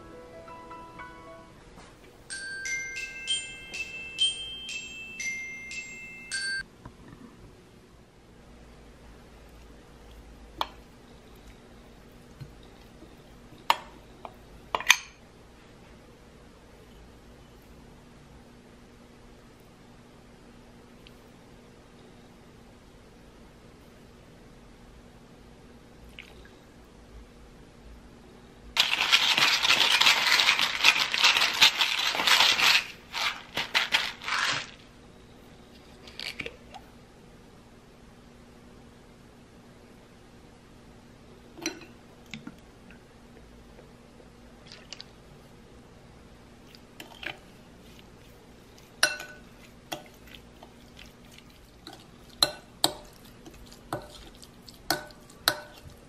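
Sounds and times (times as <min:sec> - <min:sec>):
pepper mill grinding: 0:28.8 - 0:34.9
spoon clinking on glass bowl: 0:49.0 - 0:50.1, 0:54.9 - 0:55.9.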